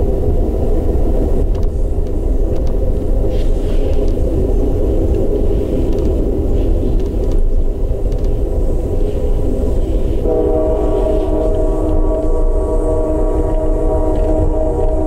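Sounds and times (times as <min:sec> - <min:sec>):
train rumbling on rails: 0:00.0 - 0:15.0
train horn chord: 0:10.2 - 0:15.0.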